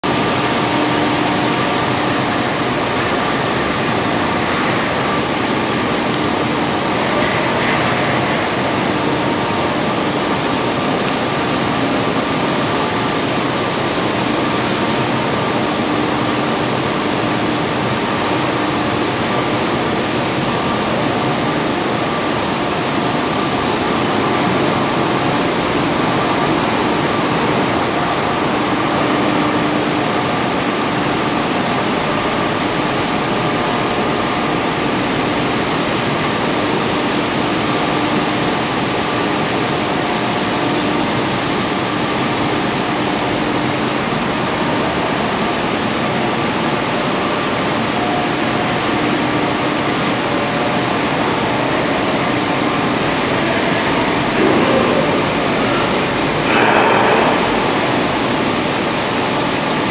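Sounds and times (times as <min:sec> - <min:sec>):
machinery rushing noise: 0:50.9 - 0:59.9.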